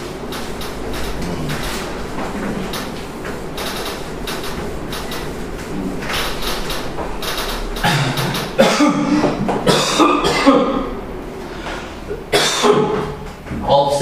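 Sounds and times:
marker scratching on whiteboard: 0:00.0 - 0:09.7
man clearing his throat: 0:07.8 - 0:10.9, 0:12.3 - 0:13.2.

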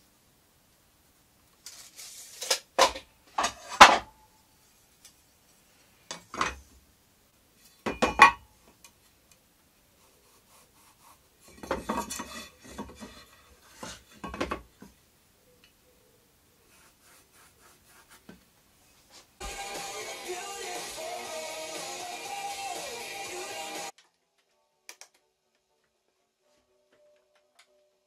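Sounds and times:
metal edge scraping on wood: 0:11.4 - 0:14.7.

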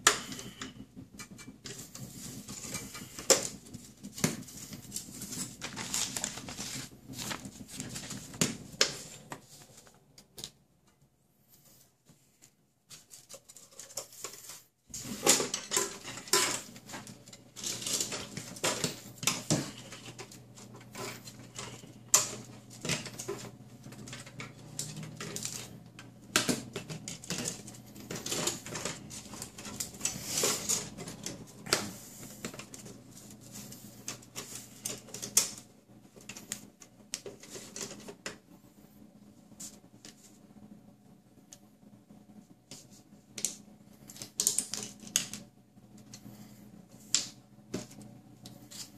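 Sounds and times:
plastic parts clicking and rattling: 0:00.0 - 0:10.6, 0:12.9 - 0:38.4, 0:43.4 - 0:46.2.

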